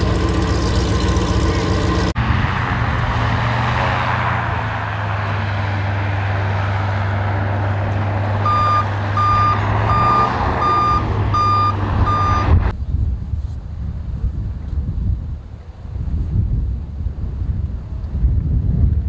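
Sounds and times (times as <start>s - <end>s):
airboat engine and propeller drone: 0.0s - 3.2s
backup alarm beeping: 8.4s - 12.6s.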